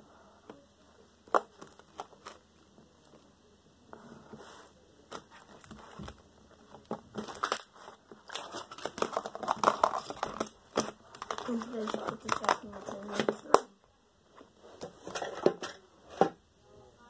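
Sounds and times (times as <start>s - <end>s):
slime rustling: 1.2s - 3.3s, 4.2s - 13.6s.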